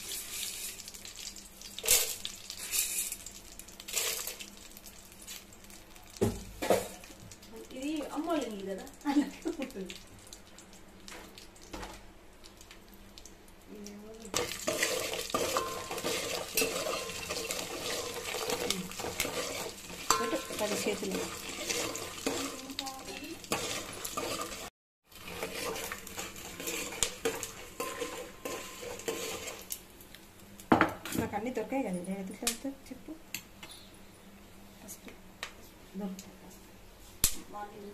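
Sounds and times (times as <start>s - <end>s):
food sizzling in hot oil: 0.0s - 32.9s
spoon clinking and scraping pot: 14.4s - 29.7s.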